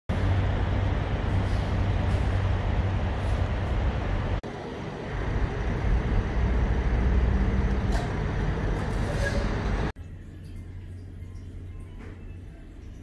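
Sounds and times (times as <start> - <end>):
idling engines and traffic: 0.1 - 10.0.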